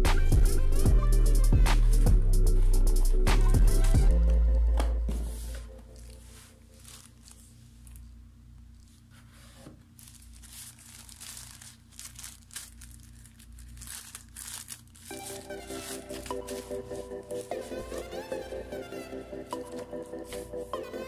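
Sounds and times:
soft background music: 0.0s - 7.5s, 13.8s - 21.0s
packaging crinkling and rustling: 5.8s - 18.3s, 19.5s - 20.7s.

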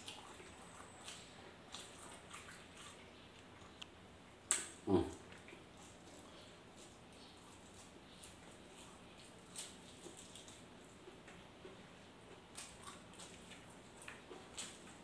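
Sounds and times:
chewing: 0.0s - 15.0s
person grunting: 4.9s - 5.2s.

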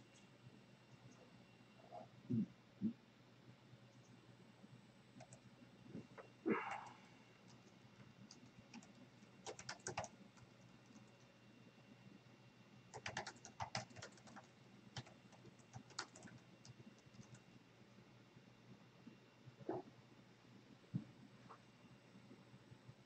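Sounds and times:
typing on a computer keyboard: 5.2s - 5.4s, 6.8s - 11.3s, 12.9s - 17.5s.

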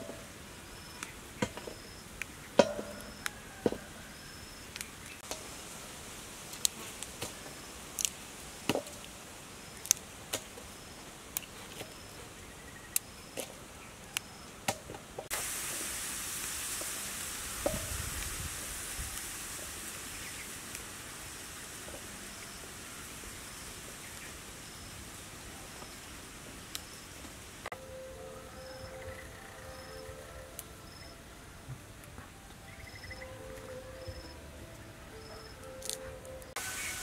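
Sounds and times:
steady hiss: 0.0s - 37.0s
flowers snapping by hand: 6.5s - 9.2s, 35.7s - 36.6s.

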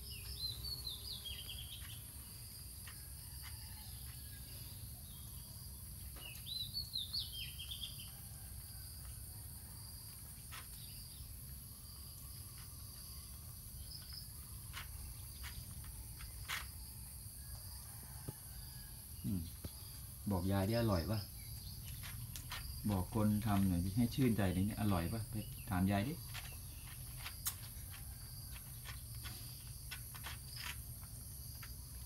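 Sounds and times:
bird chirping: 0.0s - 2.5s, 4.1s - 8.2s, 18.7s - 29.7s
insects chirring: 0.0s - 32.0s.

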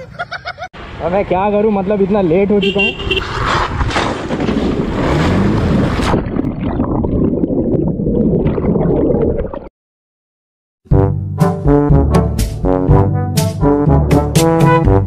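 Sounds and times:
brass music: 10.9s - 15.0s.

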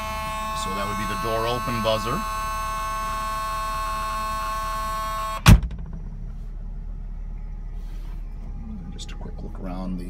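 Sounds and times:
door warning buzzer tone: 0.0s - 6.0s
car engine idling: 0.0s - 10.0s
car door thud: 5.4s - 6.4s.

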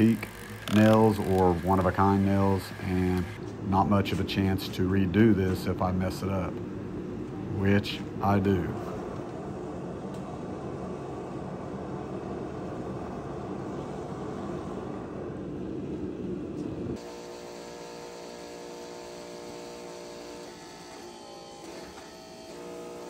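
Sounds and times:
electric motor hum: 0.0s - 3.6s, 13.6s - 23.0s
forge burner roaring: 5.9s - 23.0s.

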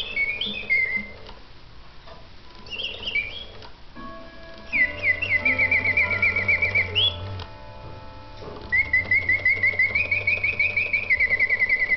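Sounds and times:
mechanical bird whistle warbling: 0.0s - 1.2s, 2.6s - 3.6s, 4.7s - 7.4s, 8.6s - 11.9s
low mechanism hum: 0.0s - 11.9s.

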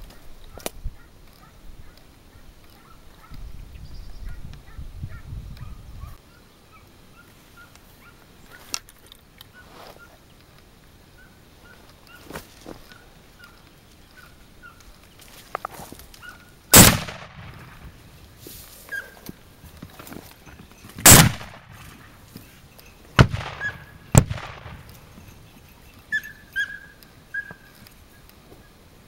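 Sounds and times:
faint sharp cracks: 14.8s - 18.0s, 21.0s - 22.4s, 23.2s - 25.2s
rifle shot: 16.7s - 18.0s, 21.0s - 22.0s, 23.2s - 25.1s
bird chirping: 21.8s - 28.8s.

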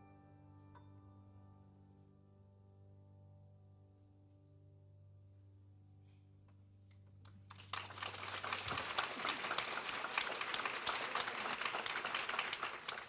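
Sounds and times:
audience applause: 7.5s - 13.0s.

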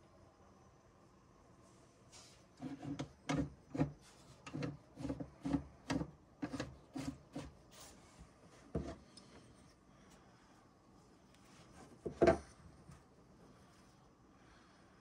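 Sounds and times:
thumbwheel turning with rubbing knocks: 2.6s - 7.5s.

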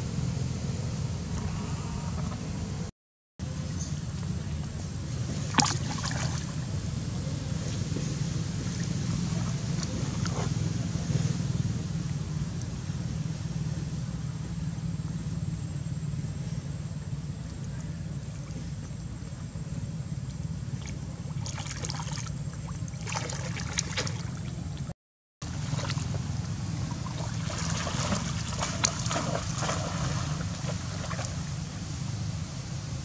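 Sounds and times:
steady low rumble: 0.0s - 33.0s
water sloshing and splashing: 5.2s - 6.8s, 7.5s - 10.8s, 20.2s - 32.1s.

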